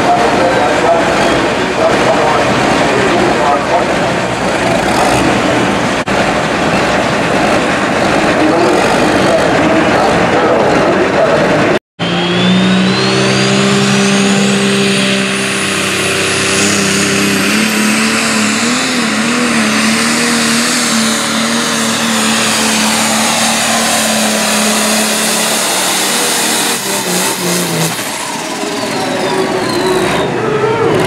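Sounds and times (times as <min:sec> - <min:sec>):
diesel tractor engine at full throttle: 0:00.0 - 0:31.0
high turbo whine: 0:00.0 - 0:31.0.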